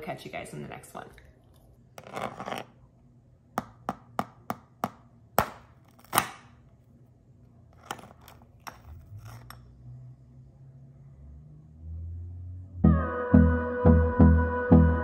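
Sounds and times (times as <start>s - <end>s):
sugar crust cracking: 5.5s - 6.5s.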